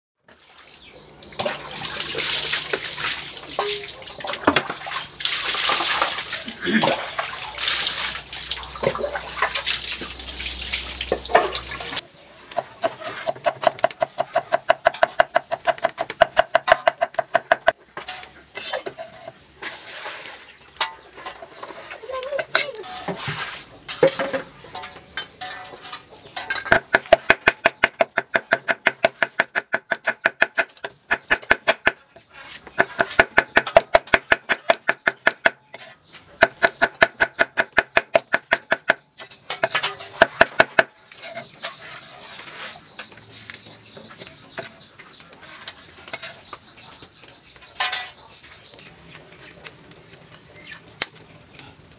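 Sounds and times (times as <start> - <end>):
scraping on chopping block: 26.9 - 39.0
cleaver chopping on wooden block: 36.4 - 39.0.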